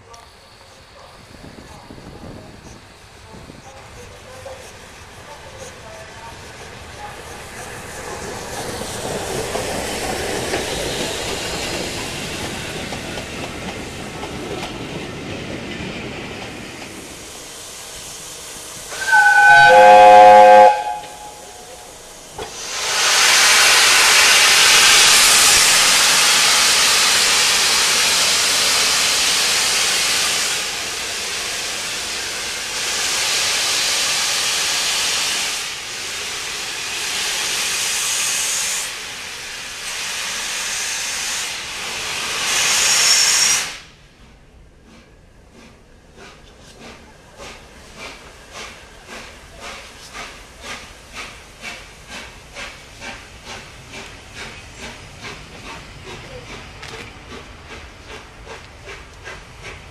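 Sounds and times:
train coaches rumbling on rails: 0.0 - 59.9
steam hissing: 0.3 - 59.9
steam locomotive whistle: 18.9 - 21.8.

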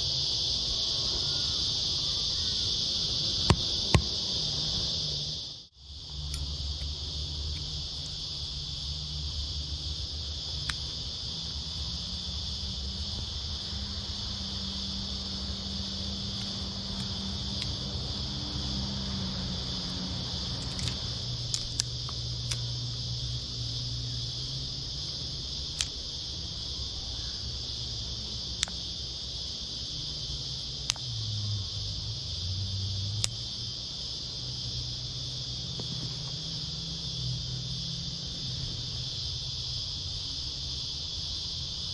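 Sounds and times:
insect chorus: 0.0 - 41.9
sharp clicks: 20.6 - 22.7, 25.7 - 26.0.

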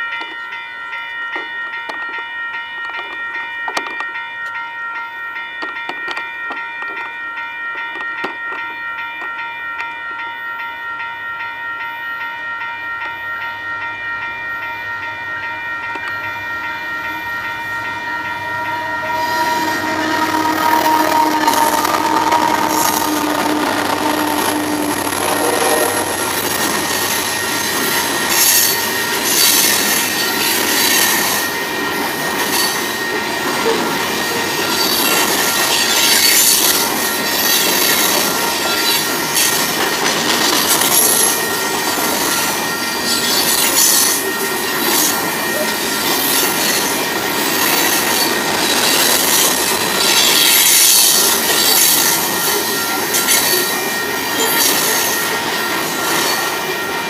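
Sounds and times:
train wheels rushing on rail: 15.8 - 57.0
high wheel squeal: 18.5 - 31.2.

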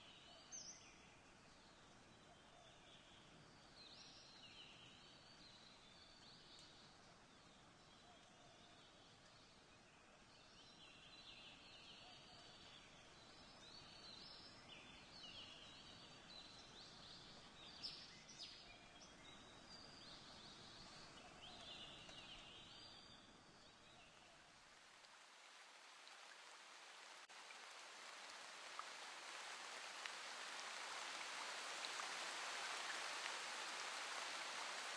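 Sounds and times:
falling water hiss: 24.5 - 34.9.

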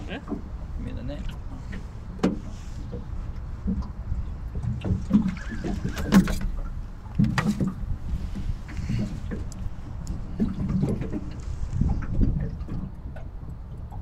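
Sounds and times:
low steady rumble: 0.0 - 14.0
water splashes: 0.0 - 14.0
knocks against boat hull: 2.2 - 4.0, 7.2 - 8.5.

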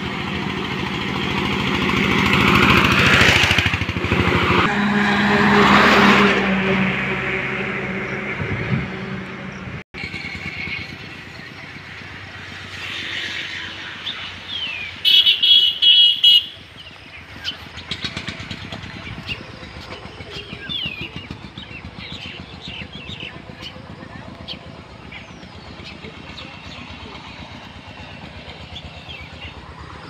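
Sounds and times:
motor traffic: 0.0 - 30.0
vehicle horn blasts: 4.7 - 9.3, 15.0 - 16.7
birds chirping: 8.0 - 30.0.

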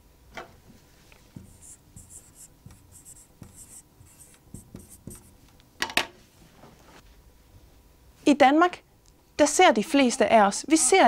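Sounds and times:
marker squeaking on whiteboard: 1.4 - 5.4
marker tip tapping board: 1.4 - 5.4.

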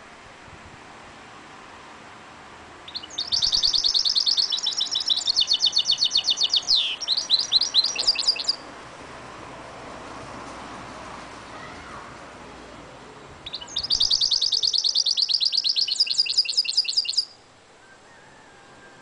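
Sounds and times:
bird singing trilled notes: 2.8 - 8.7, 13.4 - 17.4.

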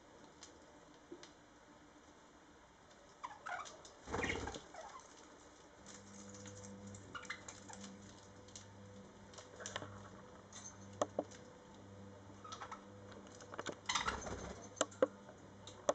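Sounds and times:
faint low hum: 0.0 - 15.9
birds clicking and tapping on toy: 5.9 - 8.7, 12.4 - 15.1.

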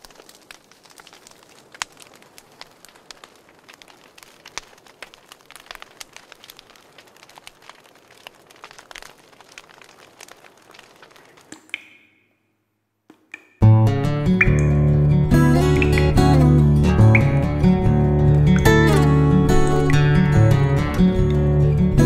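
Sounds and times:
crackling clicks and pops: 0.0 - 22.0.

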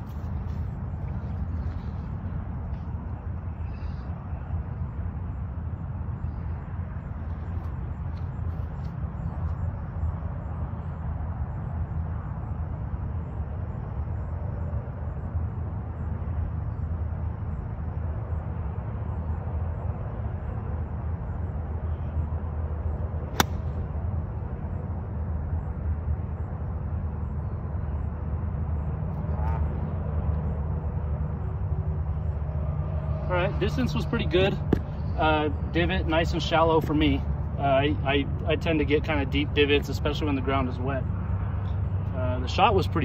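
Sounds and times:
golf club striking ball: 23.3 - 23.8.

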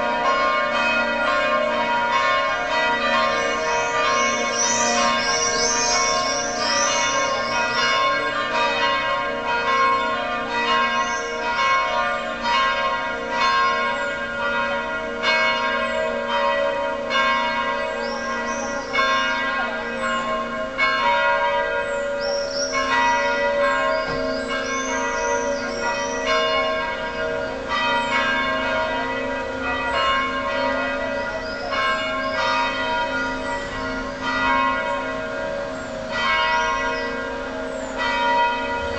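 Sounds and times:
church bells ringing: 0.0 - 38.9
high gliding bird calls: 3.8 - 7.8, 18.0 - 19.0.

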